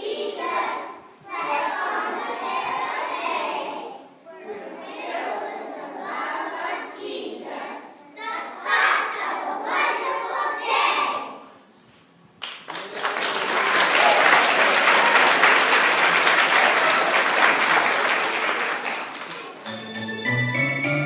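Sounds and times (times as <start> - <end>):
audience applause: 12.7 - 21.0.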